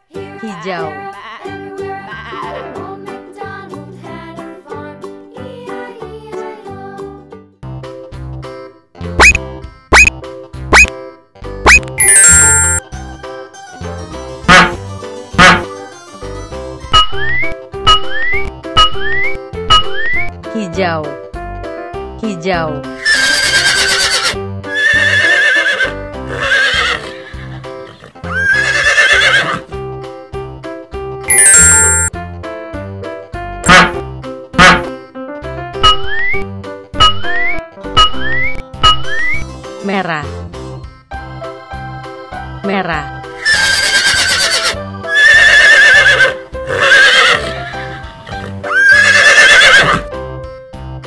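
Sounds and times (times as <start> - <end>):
cheerful children's music: 0.0 - 23.0, 29.7 - 43.9, 47.4 - 48.8, 50.1 - 51.0
horse whinnying: 23.0 - 29.7, 43.4 - 50.1.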